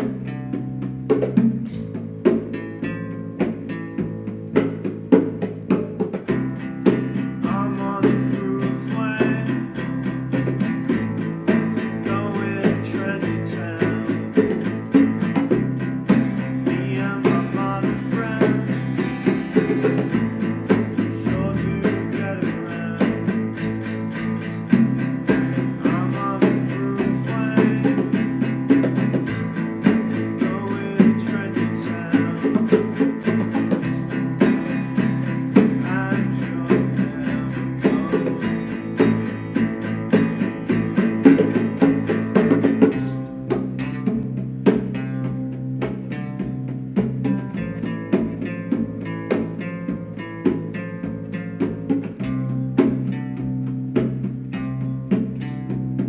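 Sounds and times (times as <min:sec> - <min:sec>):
drum kit beat: 0:00.0 - 0:56.0
guitars: 0:00.0 - 0:56.0
person singing: 0:06.8 - 0:15.5, 0:16.1 - 0:43.1.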